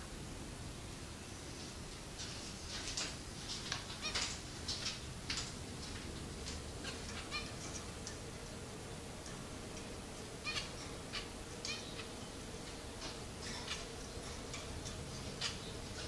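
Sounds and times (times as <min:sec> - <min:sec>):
finches chirping: 0:03.9 - 0:05.0, 0:05.8 - 0:16.0.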